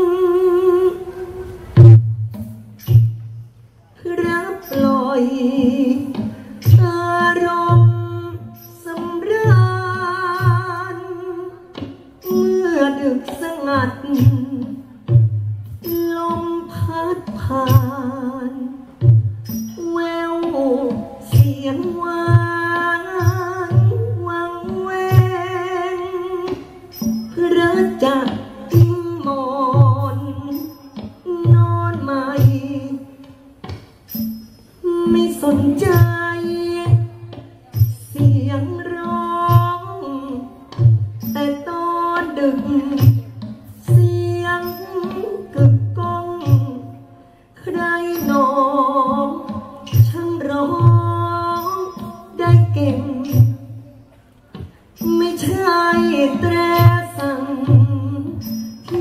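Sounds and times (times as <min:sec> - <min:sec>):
person singing into a microphone: 0:00.0 - 0:02.0, 0:04.0 - 0:15.2, 0:15.8 - 0:34.2, 0:34.8 - 0:59.0.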